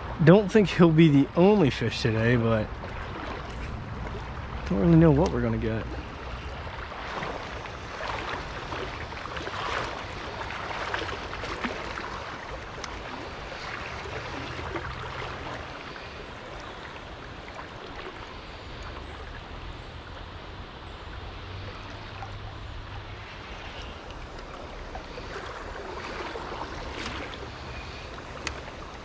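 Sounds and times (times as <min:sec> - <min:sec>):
creek water rushing: 0:00.0 - 0:29.0
light clicks: 0:28.4 - 0:28.7.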